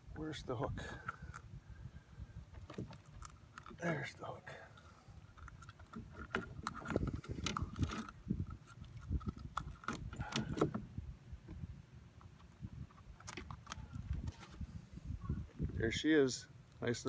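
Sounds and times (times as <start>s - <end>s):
fishing hook and lure rattling: 5.2s - 10.8s.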